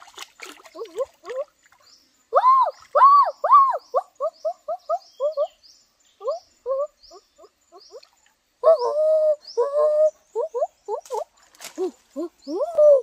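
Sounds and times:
faint high chirping: 0:00.7 - 0:13.0.

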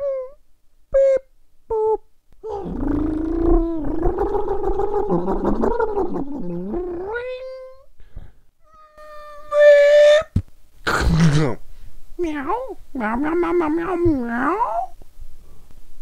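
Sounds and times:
cat meowing and yowling: 0:08.7 - 0:10.3.

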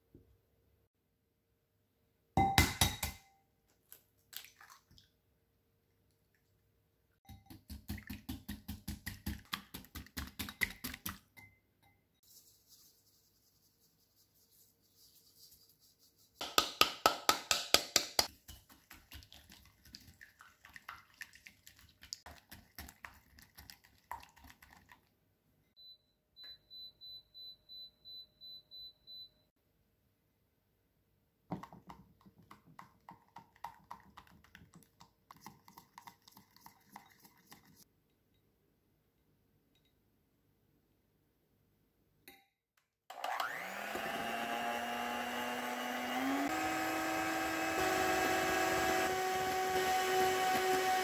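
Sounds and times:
cooktop touch panel beeps: 0:25.8 - 0:29.5.

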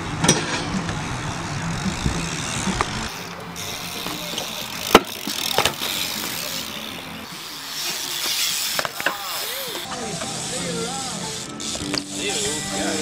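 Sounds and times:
bike tyres rolling on concrete: 0:00.0 - 0:13.0
bike landing knocks on concrete: 0:04.9 - 0:06.0.

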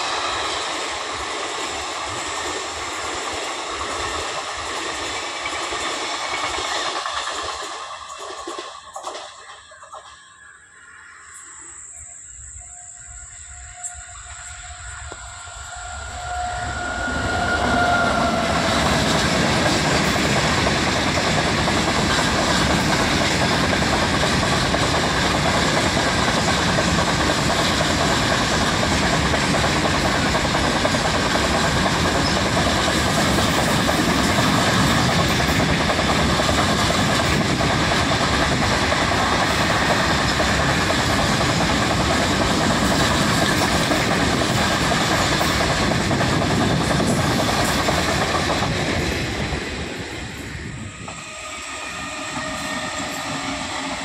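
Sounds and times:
locomotive passing: 0:12.4 - 0:54.0
wagons rumbling on rails: 0:12.4 - 0:54.0.

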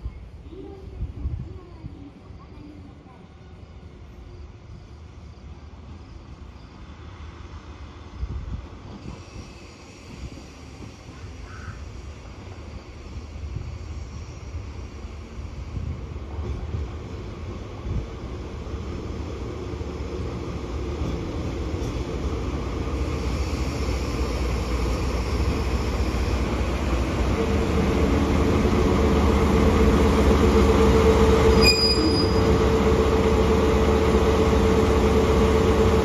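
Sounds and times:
brief high squeak: 0:31.5 - 0:32.5.

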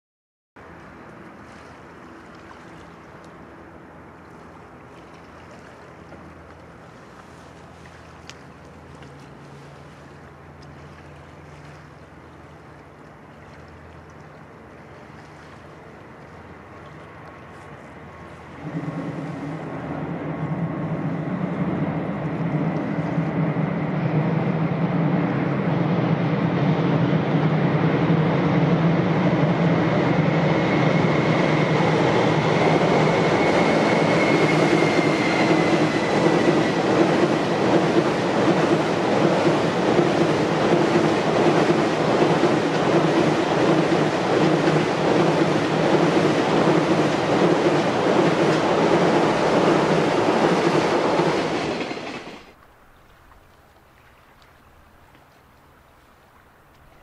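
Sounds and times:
faint high whine: 0:00.6 - 0:37.5
train wheels rumbling on rail: 0:18.2 - 0:52.6.

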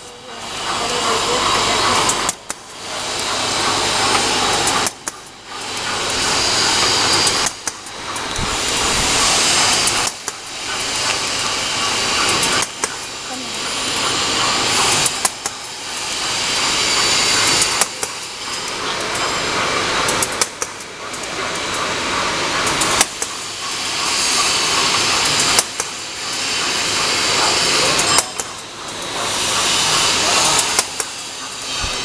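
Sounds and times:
machine whirring and hissing: 0:00.0 - 0:32.0
sharp machine click: 0:04.0 - 0:13.3, 0:27.3 - 0:32.0.

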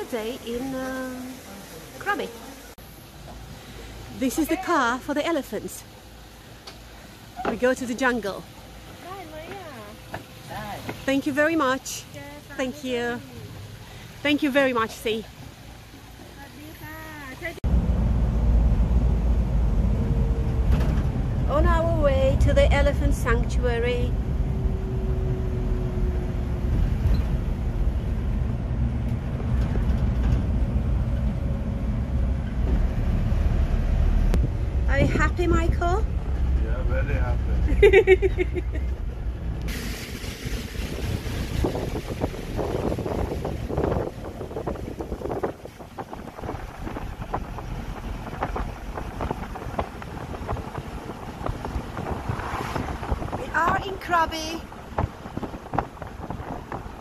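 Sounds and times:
truck engine and road rumble: 0:00.0 - 0:57.0
faint engine hum: 0:15.3 - 0:57.0
wind buffeting microphone: 0:37.3 - 0:57.0.

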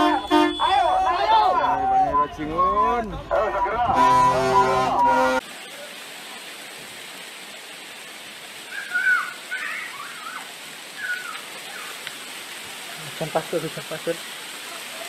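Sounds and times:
ash and sand raining down: 0:05.4 - 0:15.0.

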